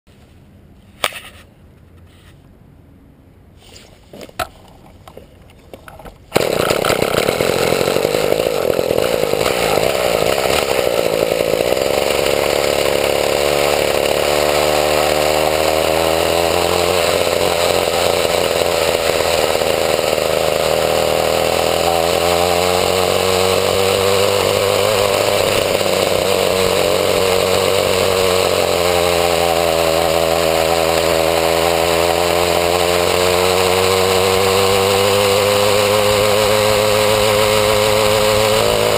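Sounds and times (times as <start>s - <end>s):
two-stroke engine running loud: 6.3s - 38.9s.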